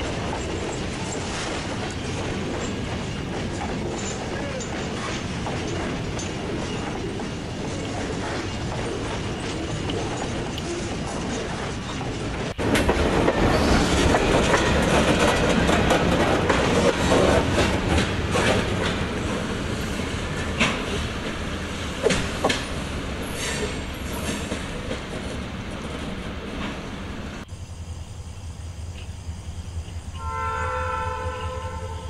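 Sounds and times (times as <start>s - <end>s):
model train wheels clicking: 0.1s - 26.7s
model locomotive horn chord: 30.2s - 32.0s.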